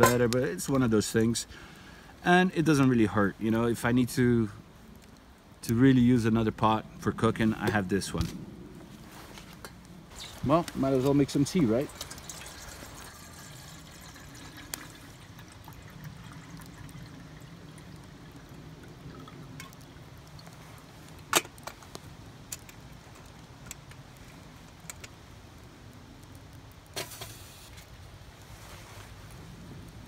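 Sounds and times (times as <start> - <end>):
water pouring into kettle: 11.2 - 20.5
metal kettle clatter: 11.9 - 16.0.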